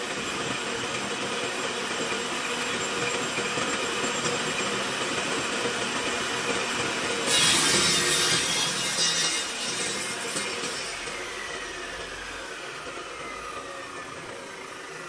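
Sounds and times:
table saw running: 0.0s - 15.0s
saw blade cutting wood: 7.0s - 15.0s.

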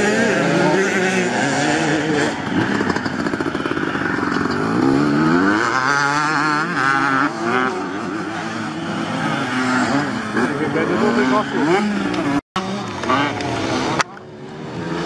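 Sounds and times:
motocross bikes revving: 0.0s - 15.0s.

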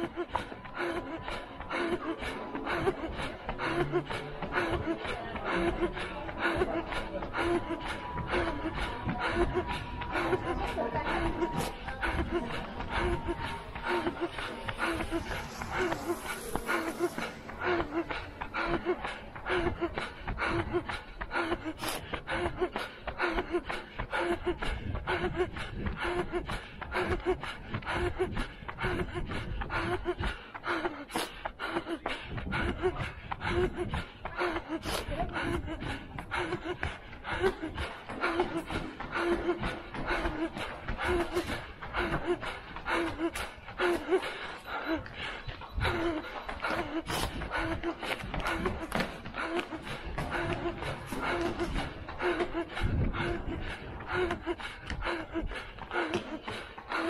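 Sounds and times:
runner panting: 0.0s - 57.0s
voiced gasps: 0.0s - 57.0s
footsteps on paving: 31.2s - 57.0s.

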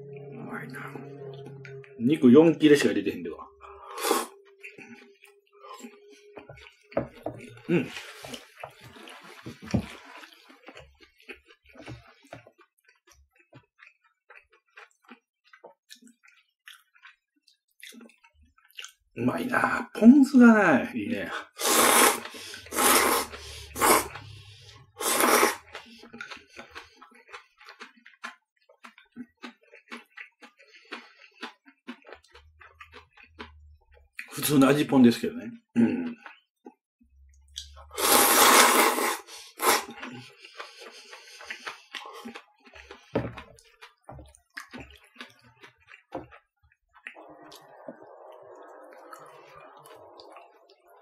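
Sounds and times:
noodles slurped loudly: 3.9s - 5.1s, 7.8s - 12.4s, 21.5s - 28.3s, 37.9s - 44.0s
quiet chewing clicks: 4.4s - 19.2s, 25.6s - 34.8s, 35.6s - 37.9s, 39.3s - 51.0s.

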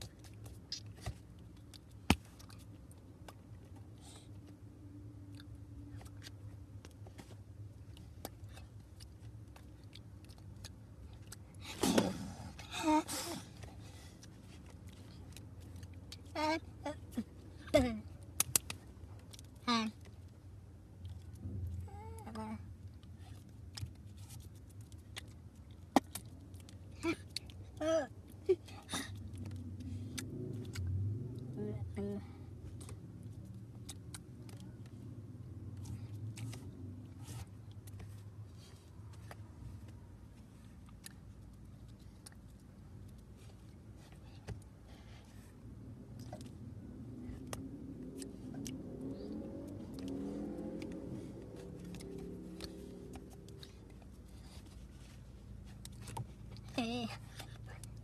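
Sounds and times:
low hum: 26.5s - 58.0s.

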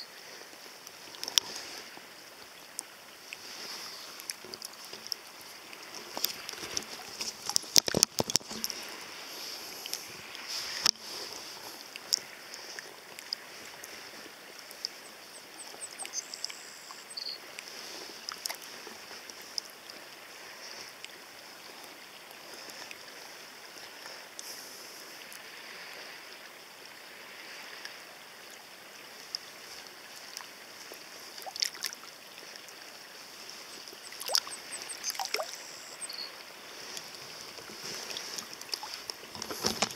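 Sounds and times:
shallow river water running: 0.0s - 39.9s
small splashes and knocks: 2.7s - 15.0s, 17.6s - 19.7s, 31.2s - 32.6s, 33.4s - 36.0s, 36.7s - 39.9s.

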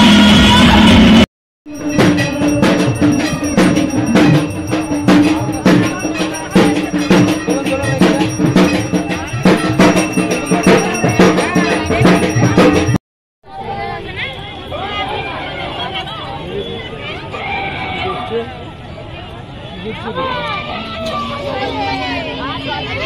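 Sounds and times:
rapid dense drumming: 0.0s - 13.0s
clanging bells: 1.7s - 13.0s
steady ringing tone: 1.7s - 13.0s.

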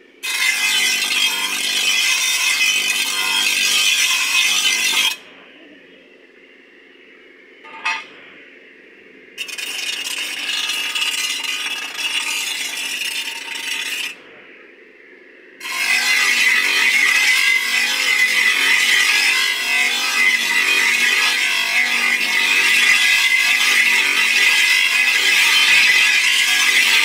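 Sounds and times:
grinder grinding blade: 0.2s - 5.2s, 7.7s - 8.1s, 9.4s - 14.2s, 15.6s - 27.0s.

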